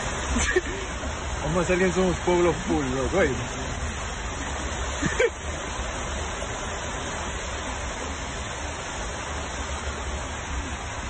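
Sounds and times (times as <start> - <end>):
water churning and spraying: 0.0 - 11.0.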